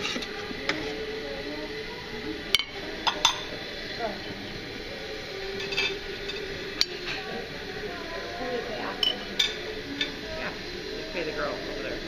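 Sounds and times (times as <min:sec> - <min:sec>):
murmur of voices: 0:00.0 - 0:12.0
crockery and utensils clinking: 0:02.5 - 0:04.0, 0:05.5 - 0:07.4, 0:08.8 - 0:10.3.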